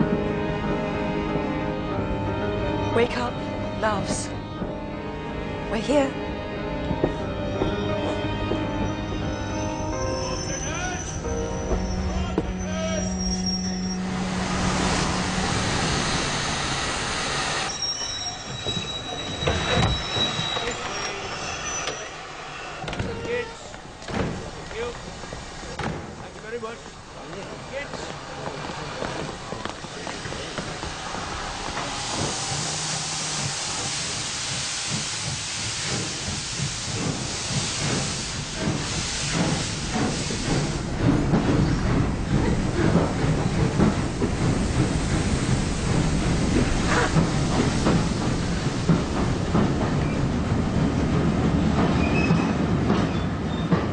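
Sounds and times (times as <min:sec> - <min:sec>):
wheels and brakes squealing: 0:08.8 - 0:14.2, 0:17.5 - 0:23.8, 0:51.8 - 0:53.9
steam hissing: 0:13.8 - 0:22.8, 0:26.8 - 0:52.3.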